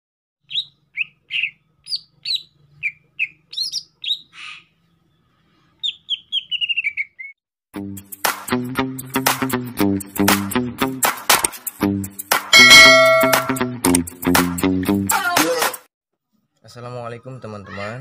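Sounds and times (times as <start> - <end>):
bird chirping and trilling: 0.4 - 5.2, 5.8 - 7.4
music: 7.8 - 15.9.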